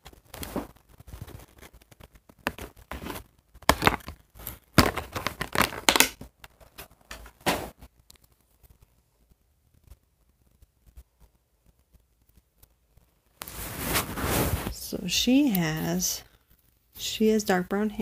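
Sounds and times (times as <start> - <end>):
packaging crinkling and tearing: 0.0 - 7.1.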